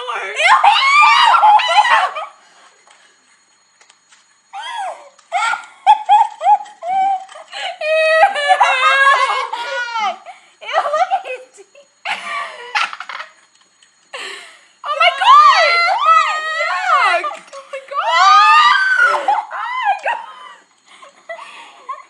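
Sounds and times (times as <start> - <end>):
women giggling and squealing: 4.6 - 13.4, 15.0 - 22.0.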